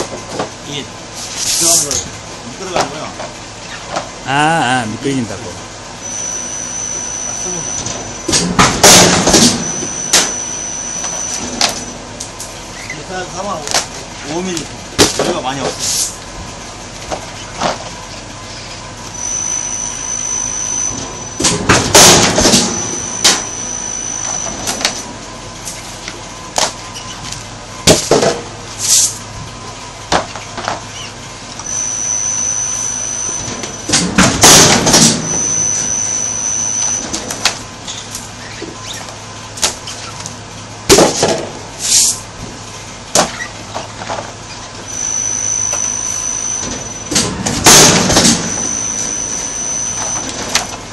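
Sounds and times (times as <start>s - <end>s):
press high steady whine: 0.0s - 50.9s.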